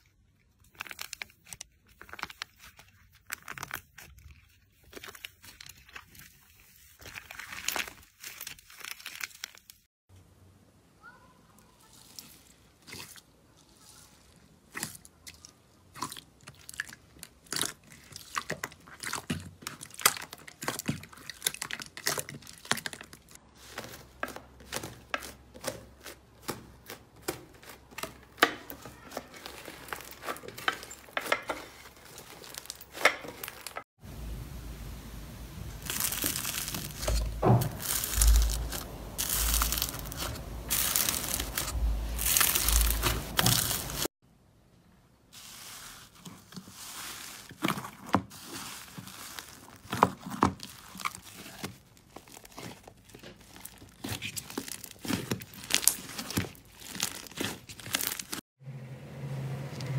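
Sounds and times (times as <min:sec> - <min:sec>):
slime crunching with dull thuds: 0:14.4 - 0:33.9, 0:35.8 - 0:44.1, 0:46.5 - 0:58.4
slime crackling and popping: 0:14.7 - 0:23.4, 0:35.8 - 0:44.1, 0:47.5 - 0:58.4.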